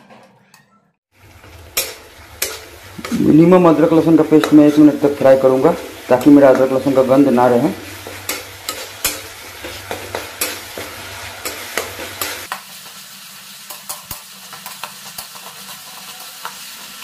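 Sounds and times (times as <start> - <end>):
masala sizzling in a pan: 1.1 - 17.0
spatula scraping metal pan: 1.4 - 5.0, 5.6 - 12.6.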